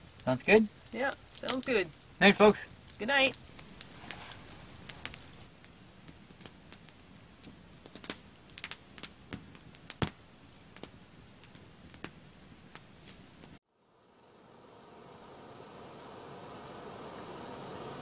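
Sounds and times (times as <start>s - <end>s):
campfire crackling and popping: 0.0s - 13.6s.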